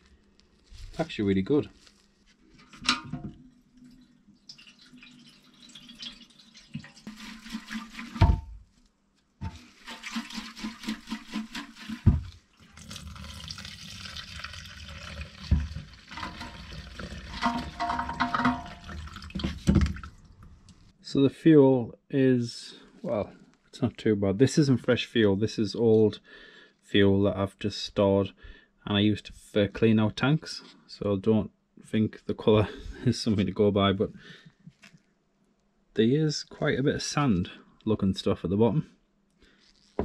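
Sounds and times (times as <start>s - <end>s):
petrol pouring into plastic jug: 3.7s - 8.4s, 9.4s - 20.5s
petrol sloshing in tank: 3.8s - 8.3s, 9.4s - 20.5s.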